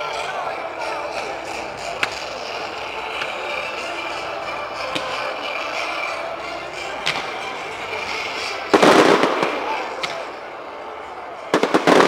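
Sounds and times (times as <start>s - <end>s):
firework fountains hissing crackle: 6.8s - 12.0s.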